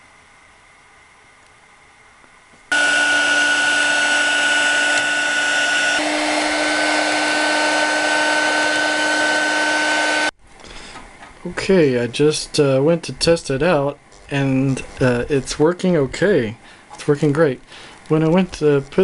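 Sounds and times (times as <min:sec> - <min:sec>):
heat gun fan whining: 0:02.7 - 0:11.0.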